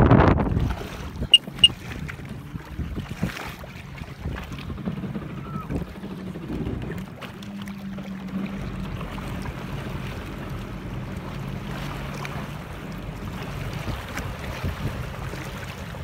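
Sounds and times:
wind on microphone: 0:00.0 - 0:07.2, 0:13.5 - 0:16.0
water noise: 0:00.0 - 0:16.0
jet ski engine humming: 0:00.4 - 0:16.0.

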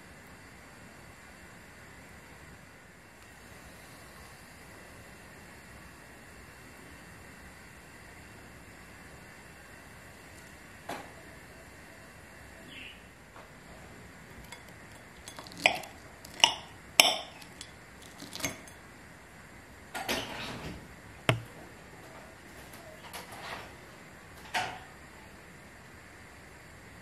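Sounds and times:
cutlery clinking on a plate: 0:14.5 - 0:18.8.

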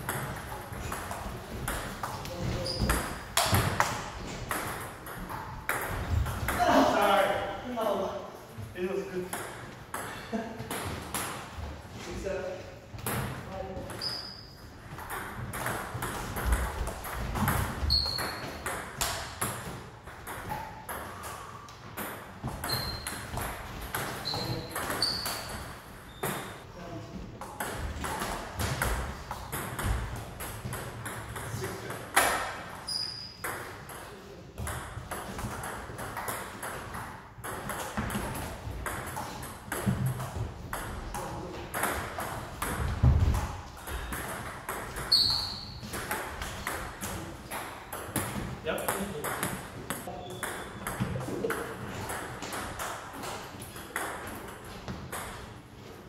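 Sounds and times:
short high squeaks: 0:14.0 - 0:14.6, 0:17.9 - 0:18.4, 0:22.6 - 0:23.2, 0:24.2 - 0:26.5, 0:32.9 - 0:33.4, 0:45.1 - 0:45.8.

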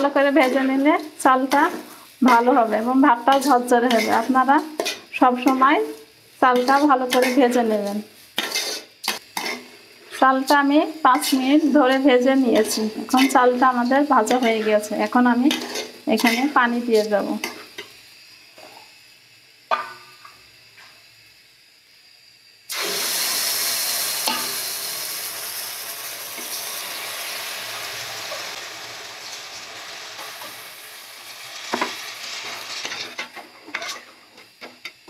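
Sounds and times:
water sizzling in hot oil: 0:00.0 - 0:35.0
spatula scraping a metal pot: 0:03.3 - 0:05.6, 0:06.5 - 0:07.6, 0:08.4 - 0:09.8, 0:15.5 - 0:17.7, 0:32.8 - 0:34.2.

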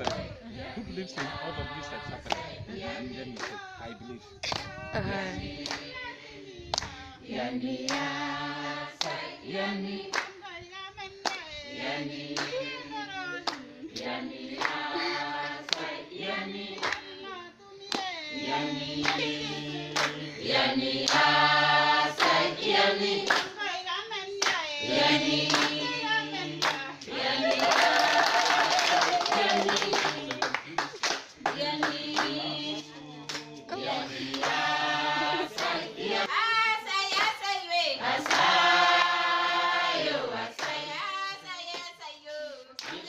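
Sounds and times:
hands clapping: 0:00.0 - 0:00.2, 0:01.2 - 0:01.4, 0:02.2 - 0:02.4, 0:03.4 - 0:03.6, 0:04.4 - 0:04.8, 0:05.6 - 0:05.9, 0:06.7 - 0:07.0, 0:07.9 - 0:08.1, 0:09.0 - 0:09.2, 0:10.1 - 0:10.4, 0:11.2 - 0:11.5, 0:12.4 - 0:12.7, 0:13.4 - 0:14.8, 0:15.7 - 0:15.9, 0:16.8 - 0:17.1, 0:17.9 - 0:18.2, 0:19.0 - 0:19.4, 0:20.0 - 0:20.2, 0:21.0 - 0:21.3, 0:23.2 - 0:23.6, 0:24.4 - 0:24.6, 0:25.4 - 0:26.0, 0:26.6 - 0:34.8, 0:35.4 - 0:35.9, 0:37.1 - 0:37.4, 0:38.2 - 0:39.6, 0:40.6 - 0:40.8, 0:41.7 - 0:42.0, 0:42.8 - 0:43.0
group singing without instruments: 0:00.0 - 0:43.0.

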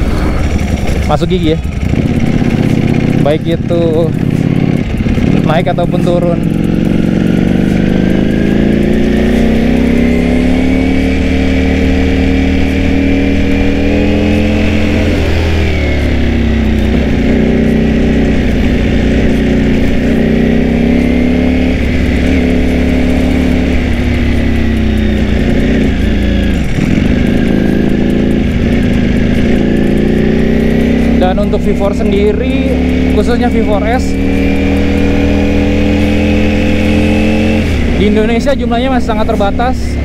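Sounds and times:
motorcycle engine revving: 0:00.0 - 0:40.0.

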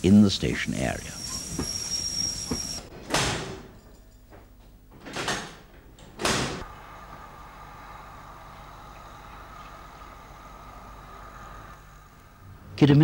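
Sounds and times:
faint steady hum: 0:05.7 - 0:13.0.

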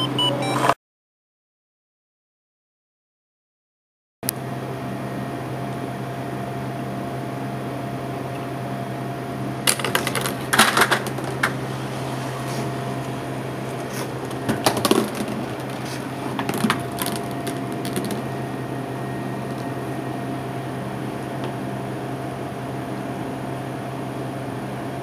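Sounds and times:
steady hum: 0:04.6 - 0:25.0
steel ball clattering through wood: 0:09.7 - 0:11.7, 0:13.7 - 0:18.4.

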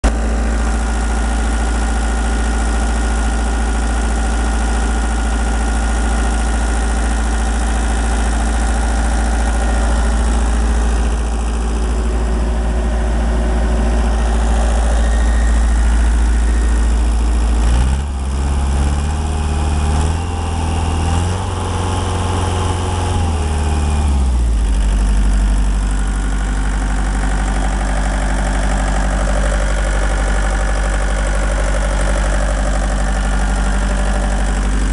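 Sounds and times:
diesel engine idling and revving: 0:00.0 - 0:34.9.

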